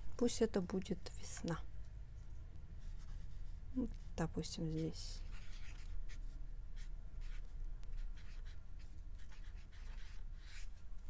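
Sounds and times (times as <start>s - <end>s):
marker scratching on paper: 2.8s - 4.0s, 4.6s - 10.8s.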